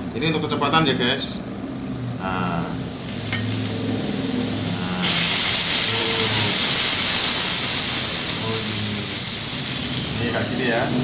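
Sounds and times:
pump humming: 0:02.2 - 0:11.0
steam gun spray hissing: 0:02.6 - 0:11.0.

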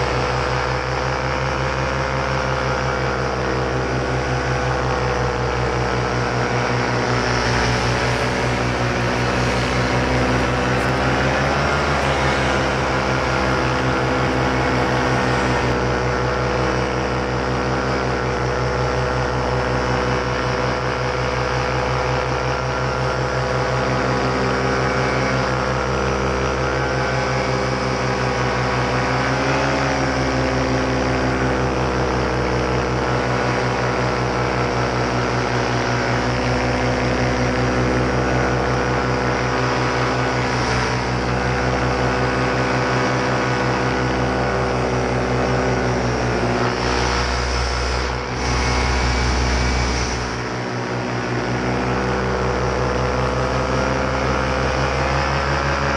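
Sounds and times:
paramotor engine droning: 0:00.0 - 0:55.9
low rumble: 0:06.5 - 0:15.8, 0:45.8 - 0:52.8.

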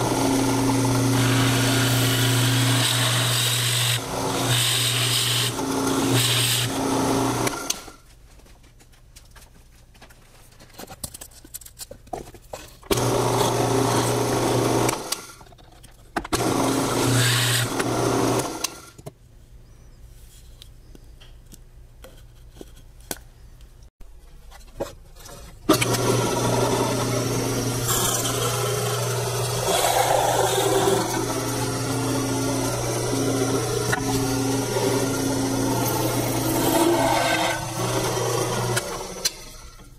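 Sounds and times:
motor hum: 0:00.0 - 0:07.8, 0:25.7 - 0:39.9
drill press boring into wood: 0:00.0 - 0:07.9, 0:16.4 - 0:18.8, 0:25.7 - 0:39.8.

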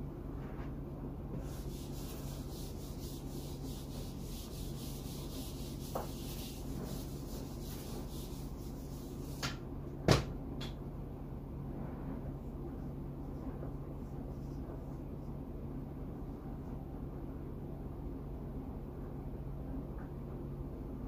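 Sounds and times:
eraser scrubbing whiteboard: 0:01.4 - 0:09.6.

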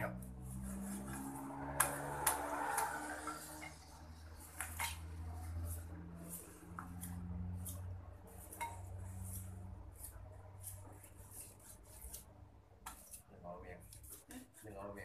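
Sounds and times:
pestle grinding in mortar: 0:00.5 - 0:15.0
kitchen utensils clinking: 0:04.6 - 0:05.1.

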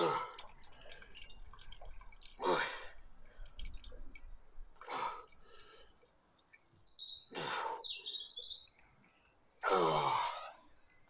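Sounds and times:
bird chirping: 0:06.5 - 0:09.6.

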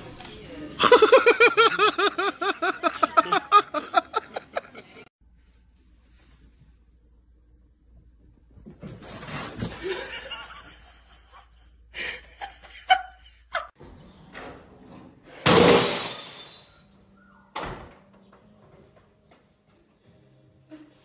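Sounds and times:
loud shattering crash: 0:15.4 - 0:16.9.

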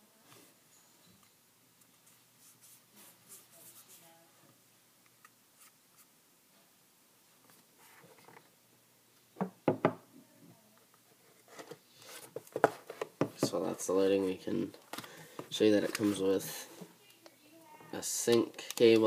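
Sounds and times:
faint handling rustles: 0:11.1 - 0:17.2.

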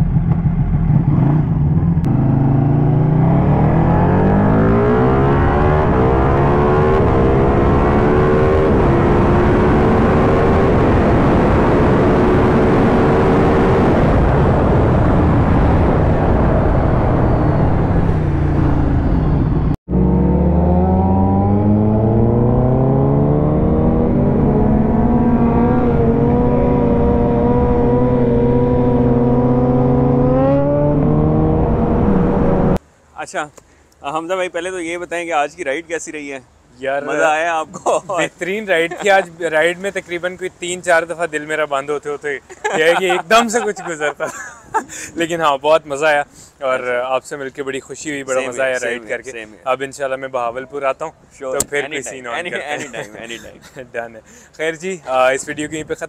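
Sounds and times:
motorbike engine accelerating: 0:00.0 - 0:32.8
wind rush: 0:05.7 - 0:19.8.

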